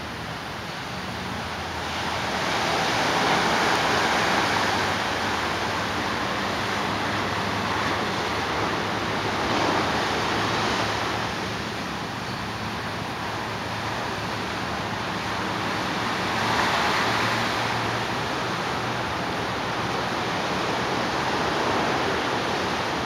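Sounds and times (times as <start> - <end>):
ocean surf breaking on beach: 0.0 - 23.0.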